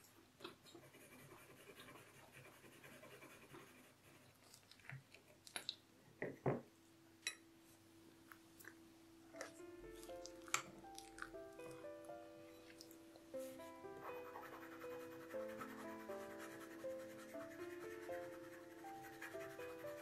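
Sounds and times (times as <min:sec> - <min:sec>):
pencil scratching on paper: 0:00.8 - 0:04.3, 0:13.4 - 0:20.0.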